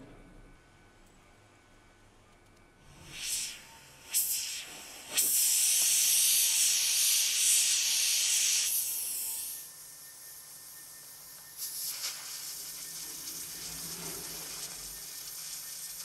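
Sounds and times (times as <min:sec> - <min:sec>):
steam hissing: 0:03.0 - 0:16.0
steam spurts: 0:11.6 - 0:16.0.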